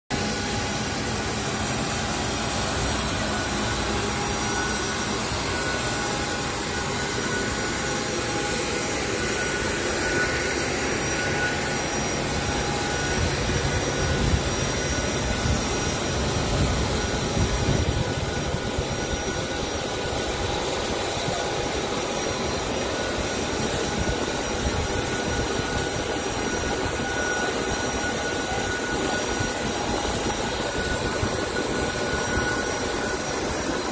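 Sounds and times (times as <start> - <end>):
aircraft turbine whine: 0.1 - 33.9.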